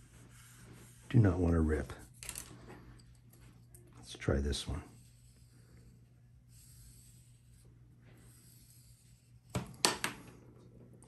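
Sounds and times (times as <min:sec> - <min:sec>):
rod tool rubbing paper: 0:00.0 - 0:02.2, 0:04.6 - 0:09.4.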